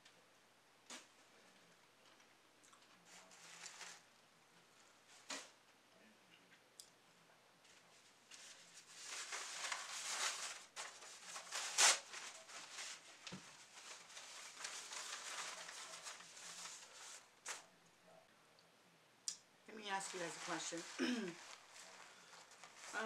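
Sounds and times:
paper napkin rustling: 0:03.0 - 0:04.1, 0:07.9 - 0:17.8, 0:19.7 - 0:23.0.

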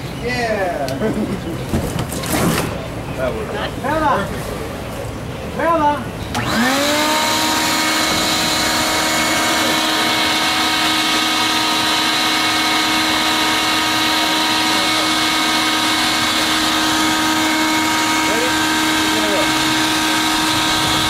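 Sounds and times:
electric air blower whining: 0:06.3 - 0:21.0.

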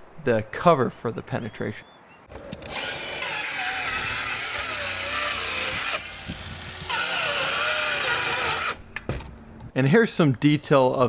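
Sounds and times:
circular saw cutting wood: 0:02.6 - 0:08.8.

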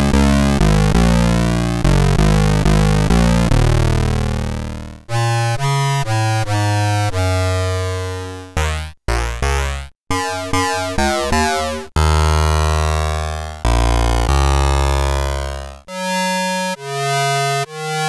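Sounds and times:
buzzy synthesizer melody: 0:10.1 - 0:12.5.

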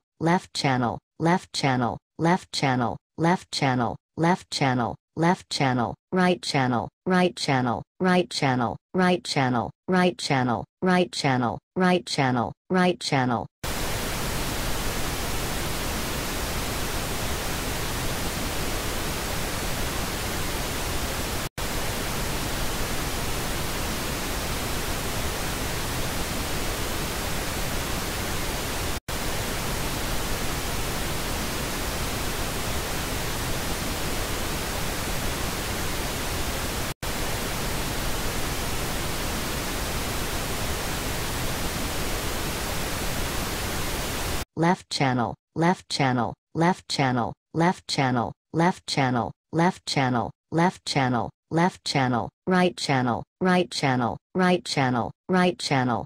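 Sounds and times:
pink noise test signal: 0:13.6 - 0:44.4.

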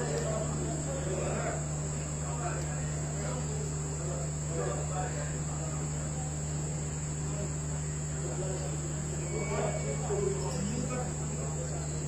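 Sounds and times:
faint distant voices: 0:00.0 - 0:12.0
insects trilling: 0:05.7 - 0:12.0.

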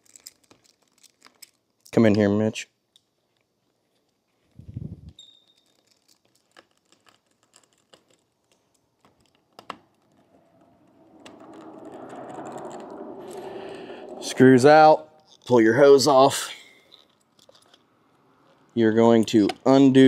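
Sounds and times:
steady rushing noise: 0:10.2 - 0:15.1.

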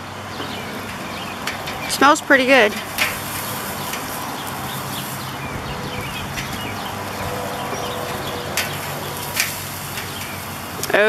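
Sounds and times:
birds chirping: 0:00.0 - 0:11.0
metal tongs clicking on grill: 0:00.4 - 0:11.0.

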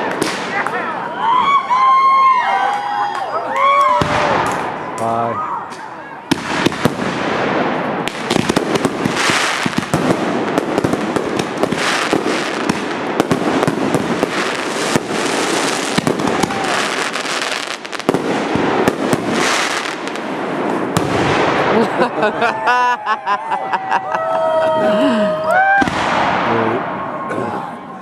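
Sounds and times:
fireworks bangs and crackles: 0:00.0 - 0:01.9, 0:03.7 - 0:05.0, 0:05.7 - 0:22.2, 0:25.6 - 0:27.0.

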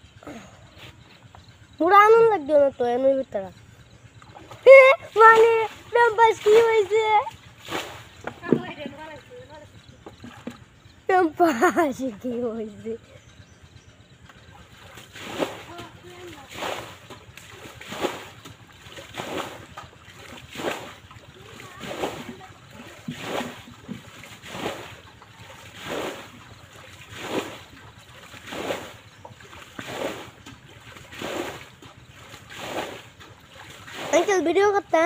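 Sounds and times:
water scooped and splashed: 0:04.2 - 0:08.6, 0:14.7 - 0:34.8.

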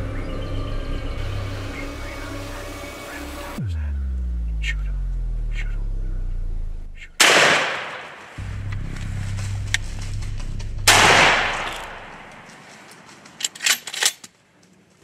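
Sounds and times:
low music drone: 0:00.0 - 0:07.5, 0:08.3 - 0:12.6
shotgun shot echoing: 0:07.2 - 0:08.4, 0:10.9 - 0:12.7.

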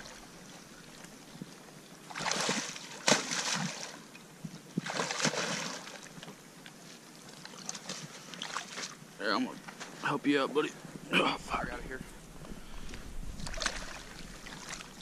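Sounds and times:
splashing through shallow water: 0:02.0 - 0:04.1, 0:04.8 - 0:06.2, 0:07.2 - 0:09.0, 0:13.3 - 0:15.0.

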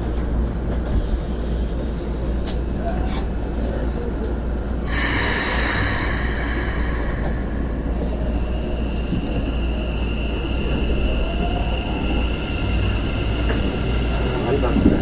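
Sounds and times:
low cabin drone: 0:04.8 - 0:15.0
air hiss: 0:04.9 - 0:09.8.

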